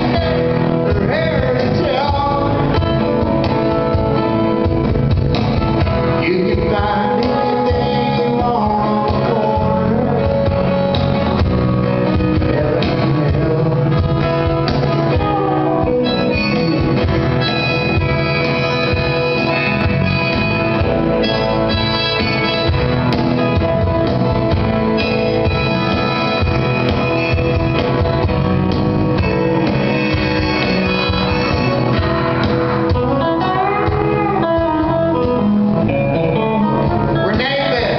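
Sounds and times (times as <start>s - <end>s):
man singing: 0.0s - 3.4s, 6.0s - 11.2s, 12.0s - 16.1s, 37.1s - 37.9s
cajon beat: 0.0s - 37.9s
electric bass: 0.0s - 37.9s.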